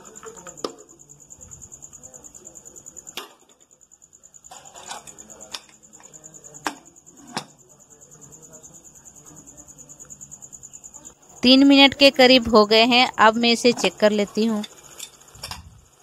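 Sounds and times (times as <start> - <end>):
cricket trilling: 0.0 - 16.0
metal spatula scraping a pot: 4.5 - 5.3.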